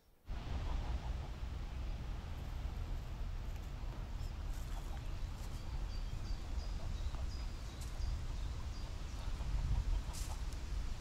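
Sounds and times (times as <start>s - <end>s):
low rumble of wind or water: 0.2s - 11.0s
geese calling softly: 0.4s - 1.8s
bird chirping: 4.2s - 10.4s.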